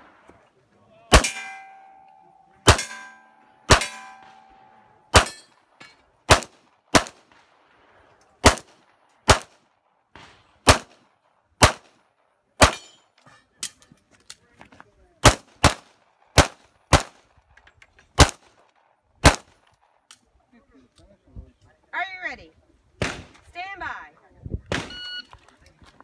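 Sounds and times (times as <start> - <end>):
pistol shots: 1.1 - 2.0, 2.6 - 5.5, 6.3 - 7.5, 8.4 - 9.6, 10.2 - 11.0, 11.6 - 12.0, 12.6 - 12.9, 15.2 - 17.2, 18.2 - 18.6, 19.2 - 19.6, 23.0 - 23.4, 24.7 - 25.0
steel targets ringing: 1.1 - 6.0.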